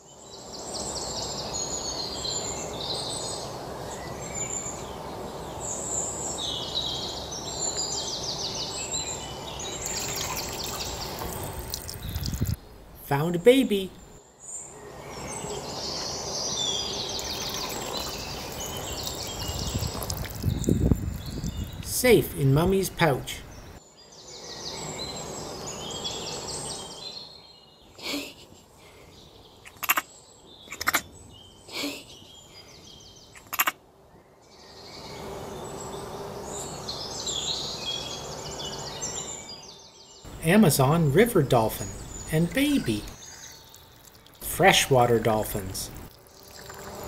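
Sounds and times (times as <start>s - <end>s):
birds chirping: 0.0s - 47.0s
water pouring and splashing: 9.7s - 12.6s, 17.1s - 21.9s, 42.6s - 47.0s.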